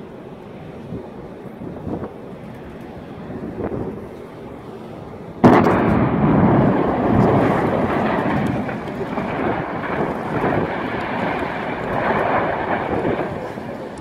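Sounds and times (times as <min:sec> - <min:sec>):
building collapse rumble: 0:05.4 - 0:14.0
loud explosion blast: 0:05.4 - 0:14.0.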